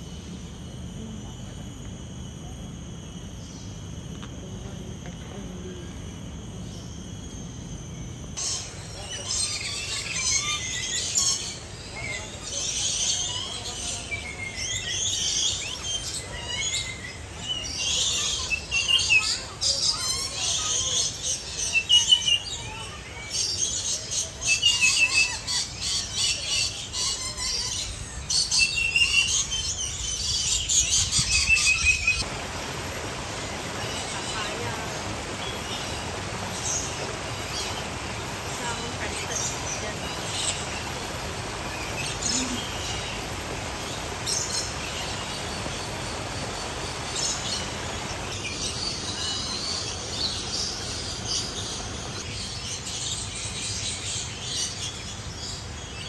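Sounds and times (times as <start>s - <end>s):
steady background hum: 0.0s - 56.0s
shrill bird chirps and squawks: 8.4s - 32.2s.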